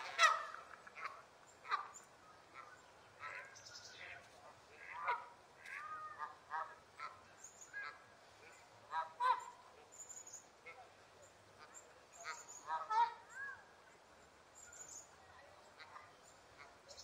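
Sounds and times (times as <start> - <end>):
geese honking: 0.0 - 9.8, 11.6 - 13.2.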